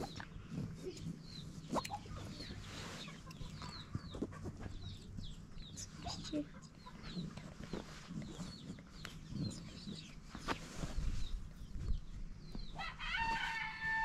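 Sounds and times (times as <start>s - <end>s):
chickens clucking: 0.0s - 10.6s
rooster crowing: 12.8s - 14.0s.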